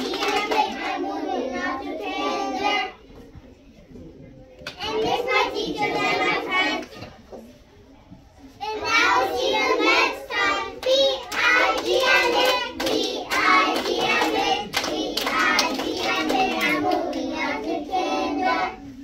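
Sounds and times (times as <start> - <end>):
hand claps: 0.0 - 0.9, 10.8 - 17.2
children singing together: 0.0 - 3.0, 4.8 - 7.1, 8.6 - 19.0.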